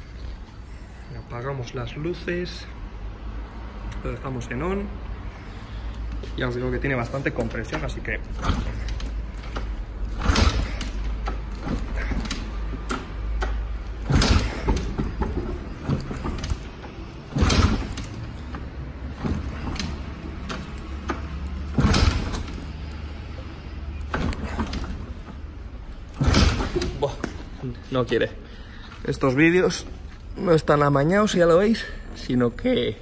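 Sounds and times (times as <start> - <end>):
motorcycle kickstarter thumps: 7.6 - 22.7, 26.0 - 27.5
engine turning over: 8.3 - 23.0.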